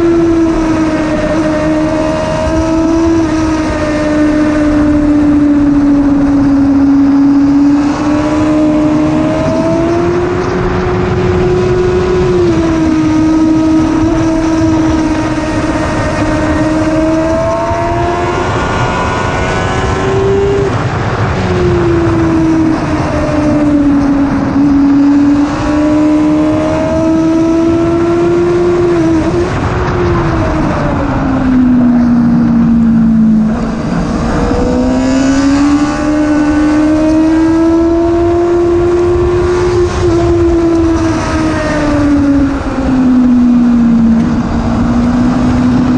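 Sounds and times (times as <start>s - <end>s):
motorcycle engine at speed: 0.0s - 45.9s.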